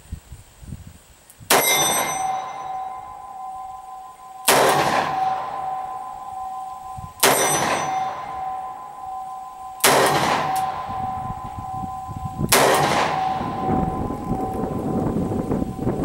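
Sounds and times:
revolver gunshots with echo: 0:01.5 - 0:03.6, 0:04.2 - 0:14.0.

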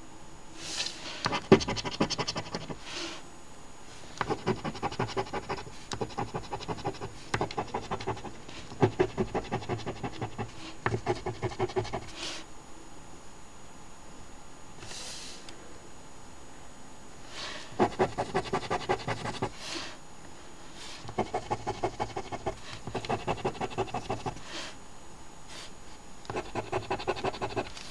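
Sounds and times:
coin scratching lottery ticket: 0:26.3 - 0:27.8.

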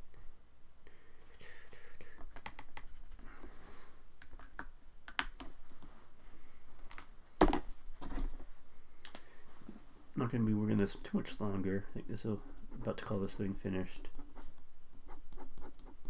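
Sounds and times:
painting materials clicking and tapping: 0:02.2 - 0:03.2, 0:04.2 - 0:05.5.

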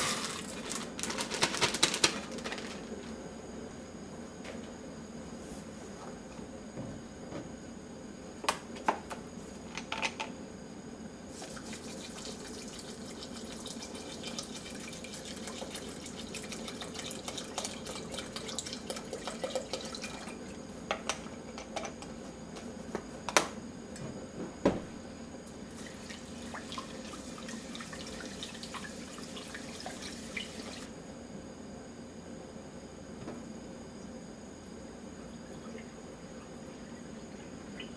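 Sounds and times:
water pouring into a metal pot: 0:11.5 - 0:20.5, 0:25.8 - 0:30.9.

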